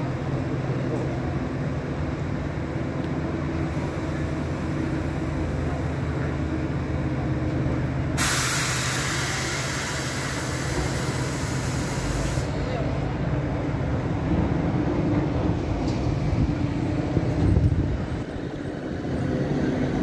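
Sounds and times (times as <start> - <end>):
air hissing: 8.2 - 12.7
electric train humming: 8.9 - 20.0.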